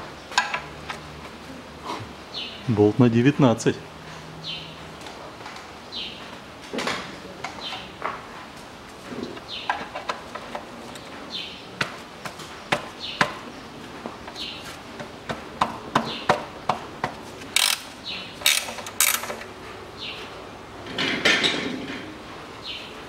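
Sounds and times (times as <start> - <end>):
bird chirping: 2.2 - 2.9, 4.4 - 4.8, 11.0 - 14.7
wrench clicks and knocks on metal: 17.6 - 19.5.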